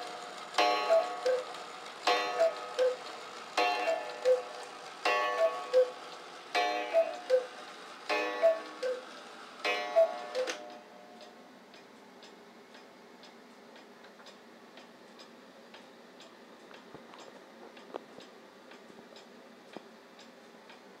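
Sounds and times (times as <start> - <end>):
cuckoo clock call: 0.0 - 11.4
clock ticking: 0.0 - 20.9.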